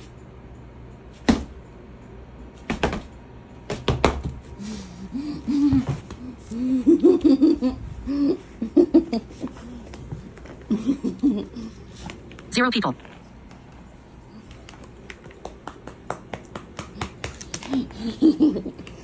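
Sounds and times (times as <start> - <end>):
person laughing: 4.7 - 9.8, 10.7 - 11.8, 17.6 - 19.0.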